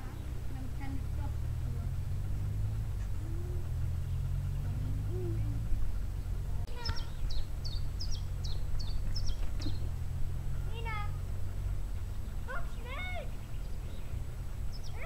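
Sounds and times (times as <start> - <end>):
low rumble: 0.0 - 15.0
songbird singing: 0.0 - 15.0.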